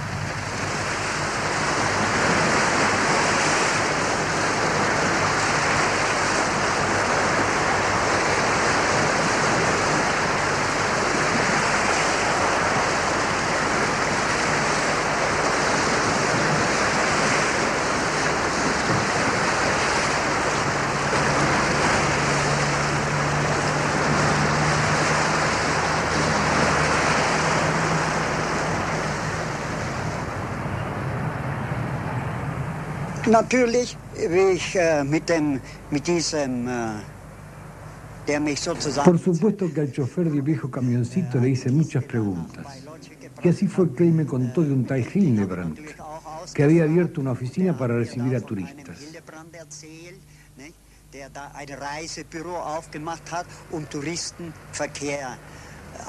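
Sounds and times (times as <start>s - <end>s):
low steady hum: 0.0s - 56.0s
waves breaking on shore: 0.0s - 56.0s.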